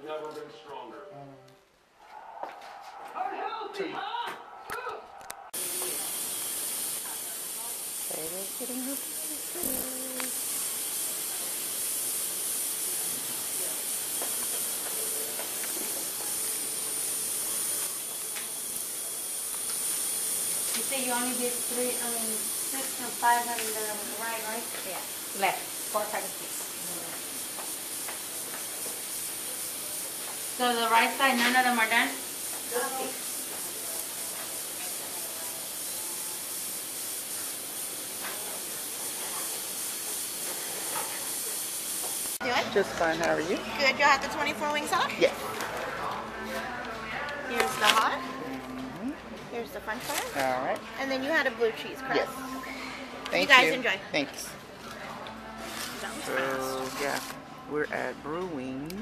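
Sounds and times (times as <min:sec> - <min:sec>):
dental suction hissing: 0:05.2 - 0:42.4.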